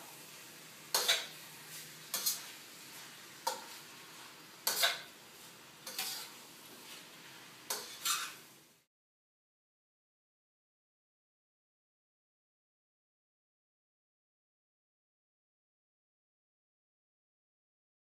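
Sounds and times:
utensil scraping a wok: 0:00.0 - 0:08.7
faint frying sizzle: 0:00.0 - 0:08.9.

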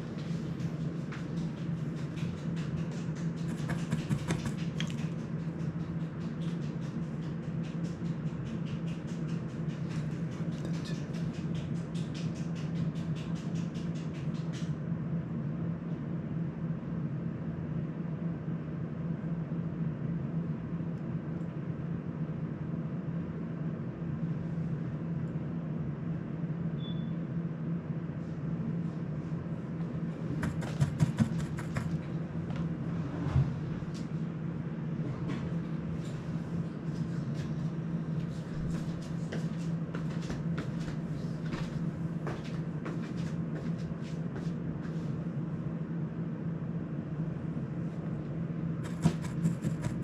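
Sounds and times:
electric fan humming: 0:00.0 - 0:50.0.

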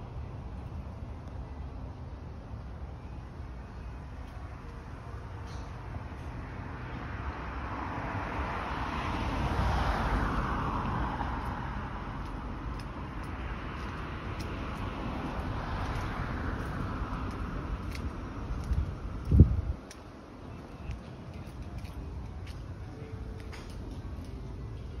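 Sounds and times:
low traffic rumble: 0:00.0 - 0:25.0
vehicle passing: 0:05.2 - 0:25.0.

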